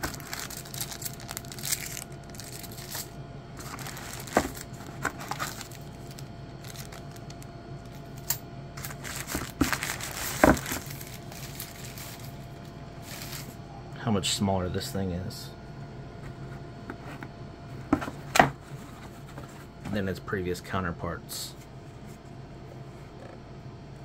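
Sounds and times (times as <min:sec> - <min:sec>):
plastic packaging crinkling: 0:00.0 - 0:08.2, 0:08.8 - 0:13.6.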